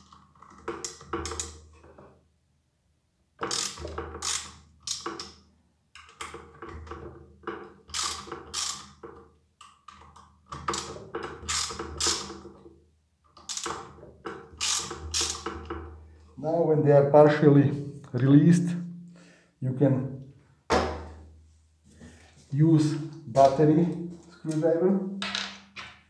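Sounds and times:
hand ratchet clicking: 0:03.4 - 0:05.4, 0:07.9 - 0:09.0, 0:10.7 - 0:12.4, 0:13.4 - 0:13.9, 0:14.6 - 0:15.5.

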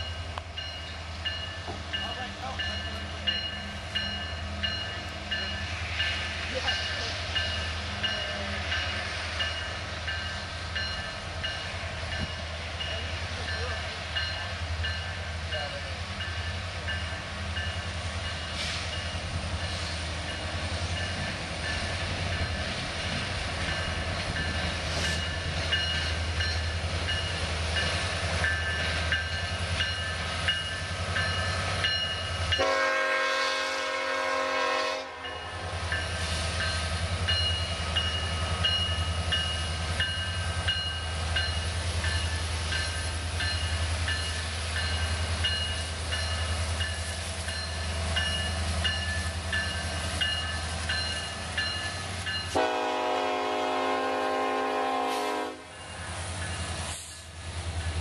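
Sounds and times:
locomotive bell ringing: 0:00.0 - 0:33.0, 0:35.2 - 0:53.2, 0:55.5 - 0:56.8
diesel locomotive engines rumbling: 0:00.0 - 0:58.0
train horn chord: 0:32.6 - 0:35.4, 0:52.6 - 0:55.8.

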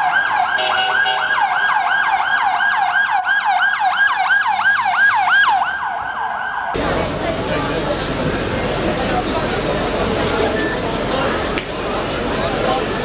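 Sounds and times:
ambulance siren yelping: 0:00.0 - 0:06.8.

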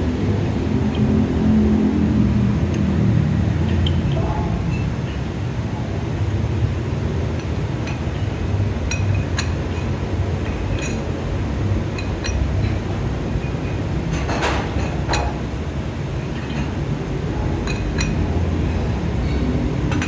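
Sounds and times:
steady low hum: 0:00.0 - 0:20.0
gym weights clinking: 0:17.4 - 0:18.4.

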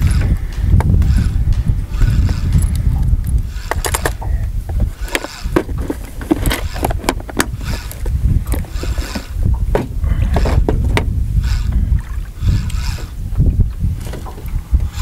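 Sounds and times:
wind rumble on microphone: 0:00.0 - 0:15.0.

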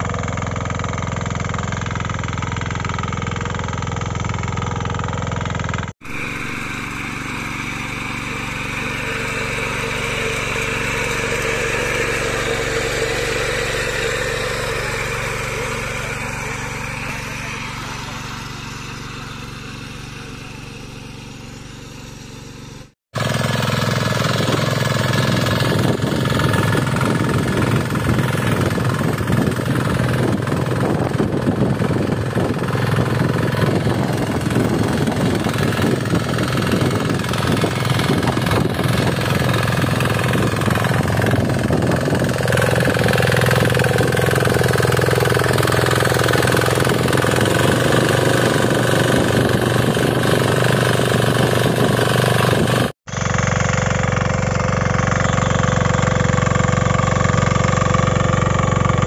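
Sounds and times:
diesel engine running under load: 0:00.0 - 0:59.0
tines churning soil: 0:00.0 - 0:59.0
rapid clatter: 0:23.2 - 0:59.0.

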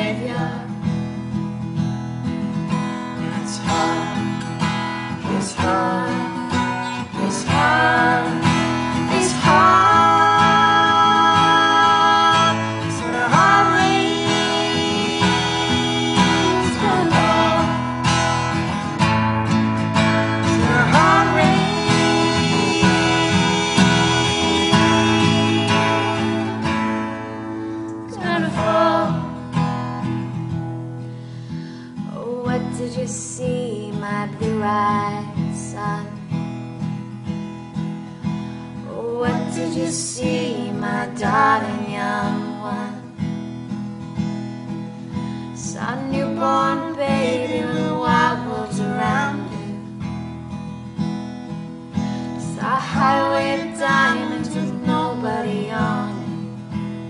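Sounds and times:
people singing: 0:00.0 - 0:00.8, 0:03.2 - 0:04.3, 0:05.1 - 0:19.1, 0:19.8 - 0:30.4, 0:38.9 - 0:43.2, 0:45.6 - 0:49.9, 0:52.4 - 0:56.6
acoustic guitar strumming: 0:00.0 - 0:57.0.

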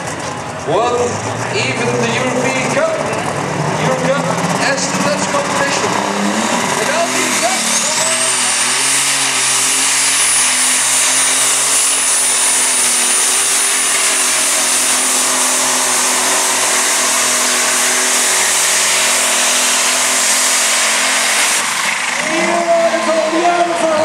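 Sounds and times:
tractor engine at full throttle: 0:00.0 - 0:24.0.

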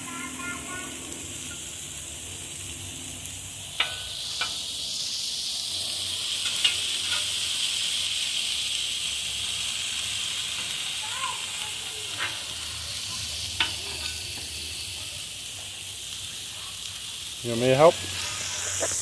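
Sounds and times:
food sizzling on griddle: 0:00.0 - 0:19.0
metal spatula clicking on griddle: 0:03.8 - 0:04.7, 0:06.4 - 0:07.4, 0:13.5 - 0:14.6.

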